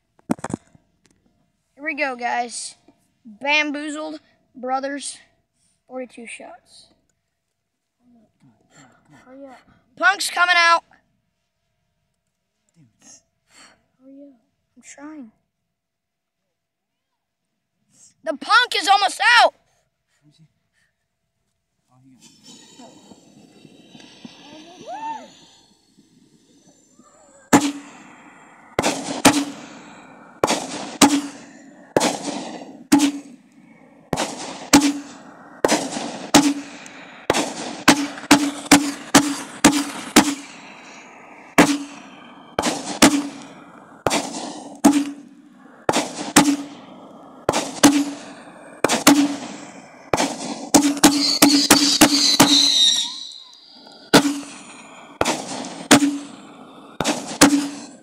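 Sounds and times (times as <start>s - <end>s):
firework bursts cracking: 1.8s - 5.2s, 10.0s - 10.8s, 18.3s - 19.5s, 22.0s - 58.0s
fireworks hissing: 22.0s - 58.0s
firework launch thumps: 22.2s - 58.0s.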